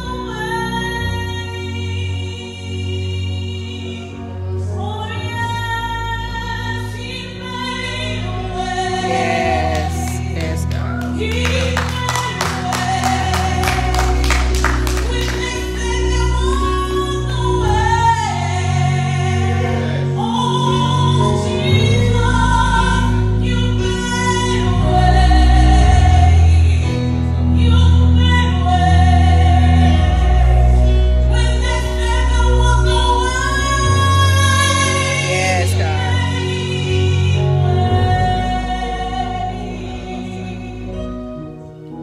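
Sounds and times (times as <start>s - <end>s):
gospel group singing: 0.0s - 41.0s.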